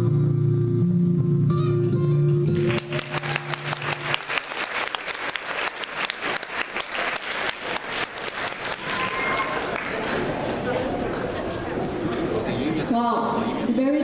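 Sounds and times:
audience applause: 2.5s - 12.5s.

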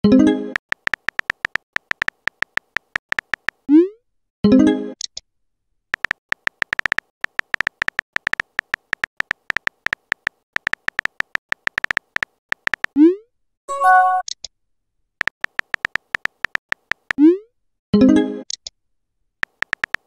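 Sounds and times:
message pop: 0.5s - 3.6s, 6.0s - 13.0s, 15.2s - 17.2s
keyboard tap clicks: 0.6s - 3.6s, 6.0s - 13.0s, 15.2s - 17.2s, 19.4s - 20.0s.

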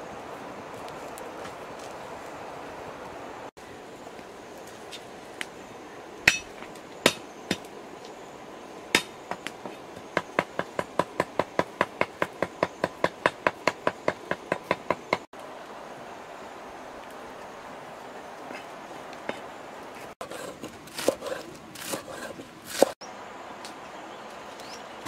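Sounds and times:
cleaver chopping on wooden block: 9.0s - 15.2s, 20.4s - 23.0s.

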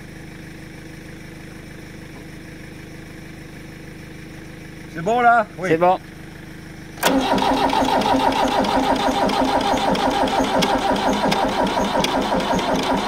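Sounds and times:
diesel tractor engine starting: 6.9s - 13.0s.

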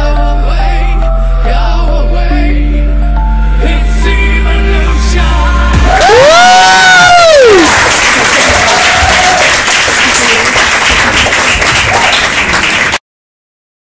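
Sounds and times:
audience applauding and cheering: 5.2s - 13.0s.

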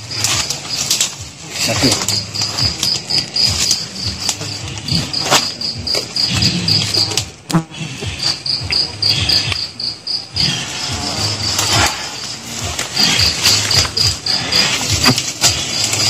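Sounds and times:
rustling in undergrowth: 0.0s - 7.2s, 7.8s - 16.0s
insect chirping: 0.0s - 16.0s.

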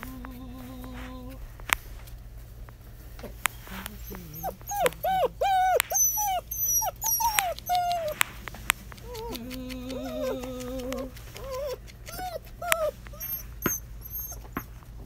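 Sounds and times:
puppies yipping: 3.9s - 15.0s
puppy wavering cry: 4.0s - 8.2s, 9.0s - 14.7s.

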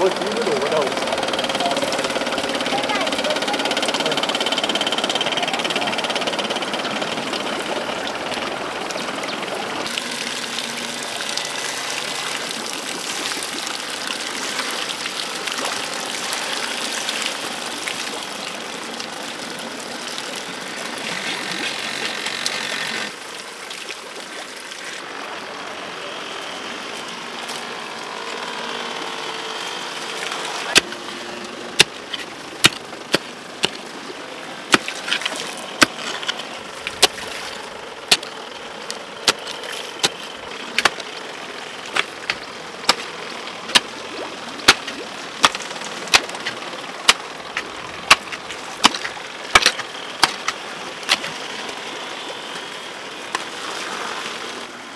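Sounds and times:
stream water rushing: 0.0s - 54.9s
hoe chopping into soil: 31.8s - 33.8s, 34.7s - 36.4s, 38.1s - 38.3s, 39.2s - 40.2s, 40.8s - 41.0s, 41.9s - 43.1s, 44.7s - 51.3s.

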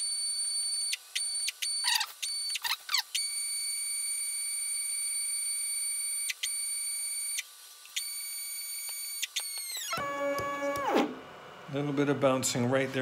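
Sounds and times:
stepper motor whine: 6.3s - 11.8s.

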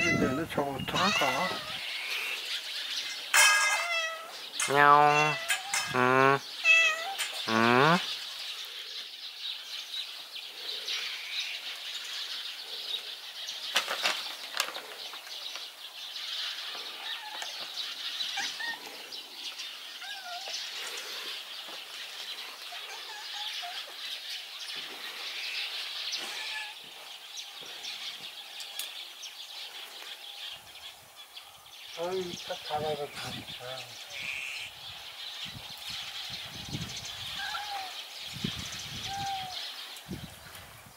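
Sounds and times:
cat meowing: 0.0s - 1.8s, 3.6s - 6.0s, 6.6s - 7.4s, 20.0s - 20.5s, 26.3s - 26.8s, 37.4s - 38.0s.

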